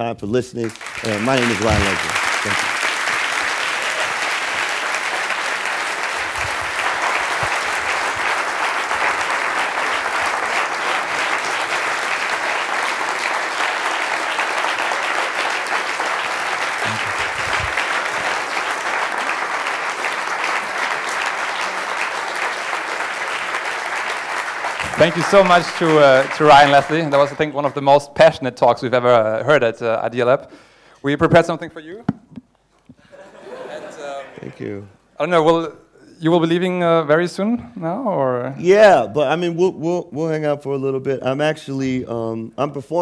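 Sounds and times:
audience applause: 0:00.6 - 0:28.1.

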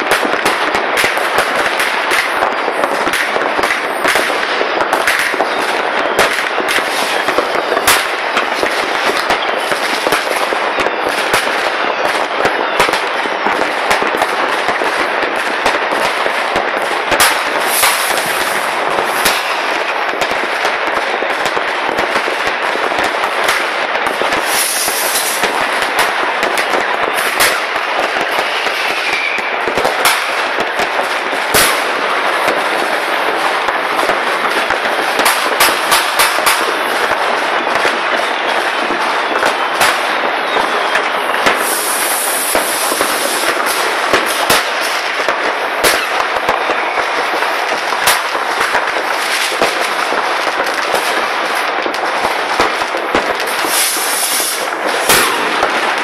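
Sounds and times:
continuous fireworks crackling: 0:00.0 - 0:56.0
firecracker bangs and pops: 0:00.0 - 0:56.0.

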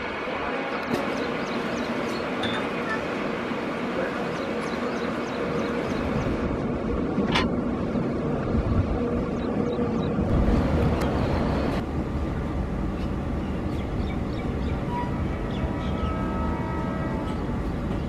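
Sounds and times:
train rumbling over rails: 0:00.0 - 0:18.0.

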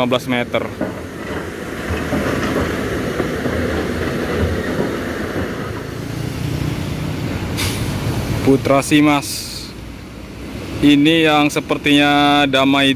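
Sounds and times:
road noise: 0:00.0 - 0:12.9.

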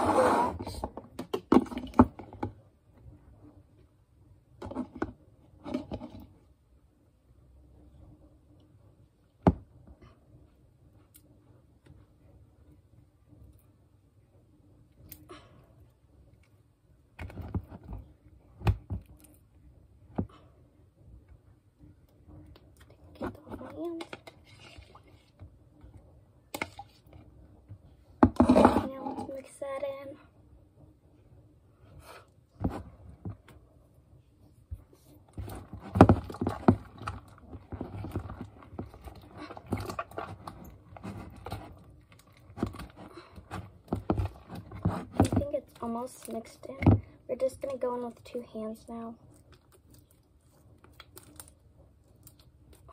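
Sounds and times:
spoon stirring slime in plastic bowl: 0:22.6 - 0:25.5, 0:35.3 - 0:46.6.

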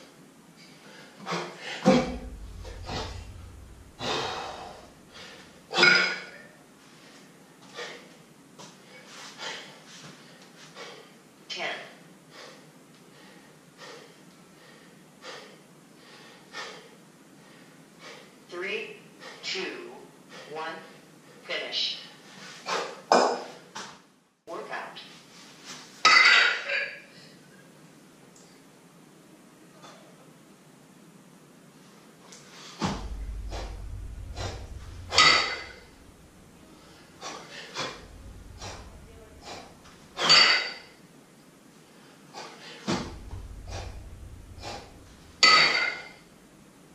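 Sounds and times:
low rumble: 0:01.9 - 0:05.8, 0:32.8 - 0:40.5, 0:42.9 - 0:46.7.

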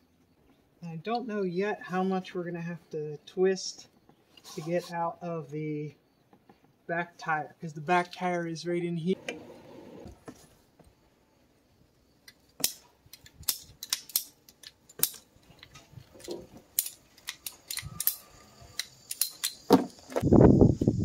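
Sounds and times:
hose cutter clicking and snipping: 0:12.3 - 0:18.2, 0:18.8 - 0:19.7.

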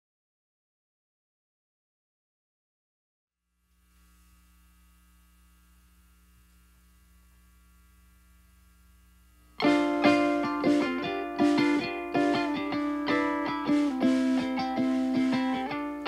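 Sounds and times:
faint electrical hum: 0:03.4 - 0:16.0
strummed acoustic guitar and ukulele: 0:09.6 - 0:16.0.

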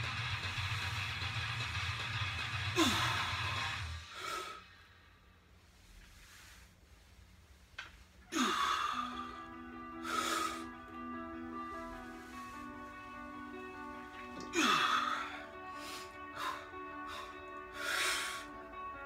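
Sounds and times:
background music: 0:00.0 - 0:05.1, 0:08.2 - 0:19.0
heavy breathing: 0:08.2 - 0:18.8.

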